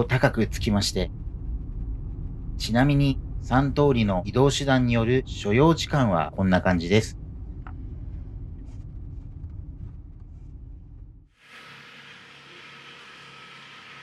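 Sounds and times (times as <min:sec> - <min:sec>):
steady outdoor hiss: 0:00.0 - 0:07.6
car road rumble: 0:00.0 - 0:11.4.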